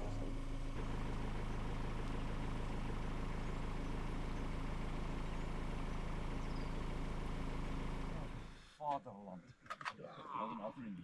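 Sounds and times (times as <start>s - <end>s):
vehicle engine humming: 0.0s - 8.8s.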